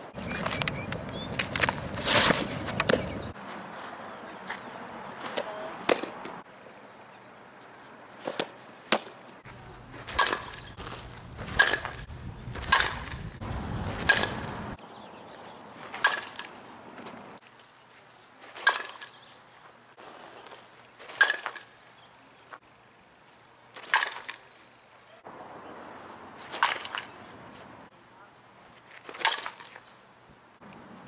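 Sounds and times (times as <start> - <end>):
bat cracking ball with ping: 10.0 - 10.8, 11.4 - 13.3, 14.0 - 14.7, 15.9 - 16.6, 18.6 - 19.2, 26.5 - 27.2
wind rumble on microphone: 10.7 - 14.8.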